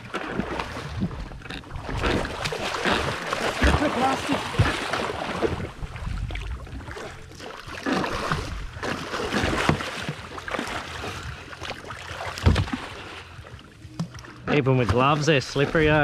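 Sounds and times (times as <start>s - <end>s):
water sloshing against boat hull: 0.0s - 16.0s
knocks on boat: 12.4s - 12.8s.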